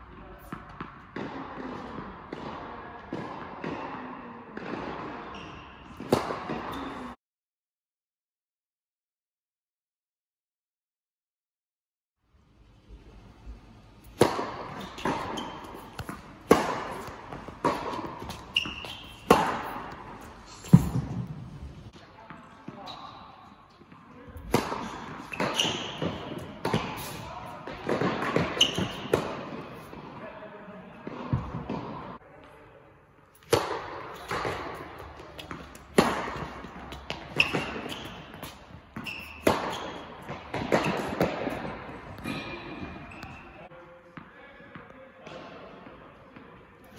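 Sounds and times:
tennis ball hit by rackets: 0:00.4 - 0:05.4, 0:06.0 - 0:07.1, 0:14.0 - 0:21.6, 0:24.4 - 0:30.1, 0:33.4 - 0:43.4
short high squeaks: 0:18.3 - 0:19.3, 0:39.0 - 0:40.0.

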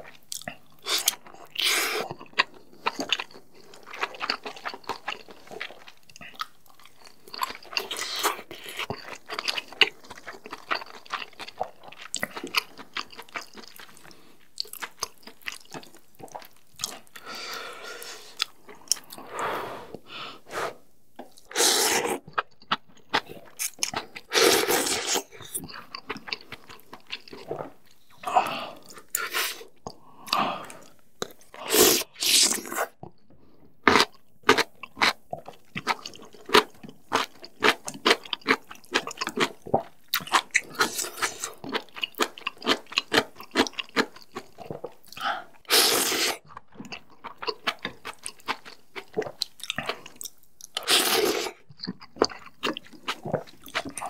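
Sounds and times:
slurping noodles: 0:21.4 - 0:22.3, 0:24.2 - 0:25.5, 0:31.6 - 0:33.0, 0:45.2 - 0:46.4, 0:50.8 - 0:51.6
wet chewing clicks: 0:46.4 - 0:54.0.

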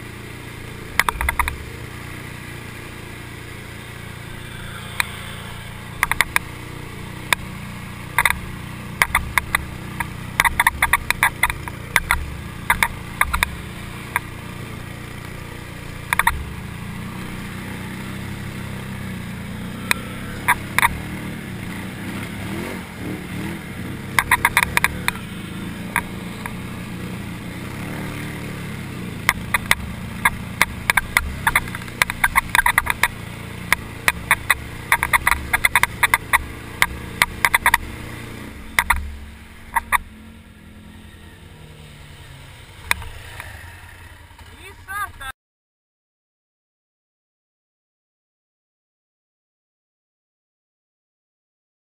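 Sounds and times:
atv engine running: 0:00.0 - 0:45.3
sharp clicks and knocks: 0:00.9 - 0:01.7, 0:06.0 - 0:06.5, 0:08.1 - 0:14.3, 0:16.1 - 0:16.4, 0:19.8 - 0:21.0, 0:24.1 - 0:25.2, 0:29.2 - 0:38.0, 0:38.7 - 0:40.1, 0:42.8 - 0:43.5.

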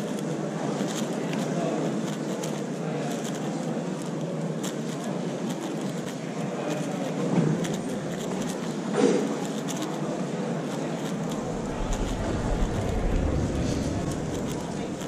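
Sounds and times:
crowd murmur: 0:06.6 - 0:15.0.

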